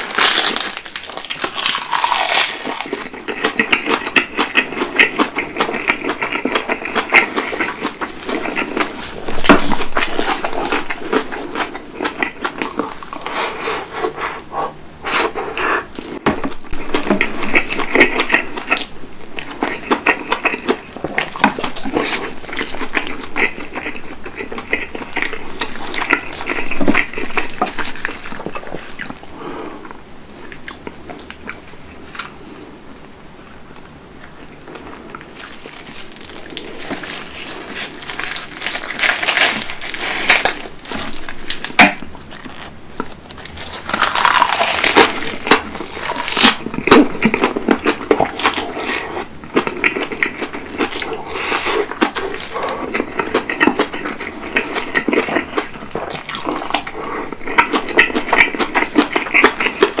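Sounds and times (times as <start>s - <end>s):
crisp crackling crunching seaweed: 0.0s - 3.1s, 35.2s - 49.2s, 49.8s - 57.4s
chewing food: 0.0s - 14.3s, 15.3s - 32.4s, 33.8s - 60.0s.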